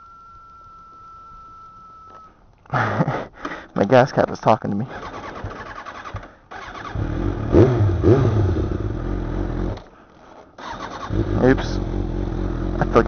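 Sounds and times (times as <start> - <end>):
motorcycle engine revving: 4.9 - 9.9, 10.6 - 13.0.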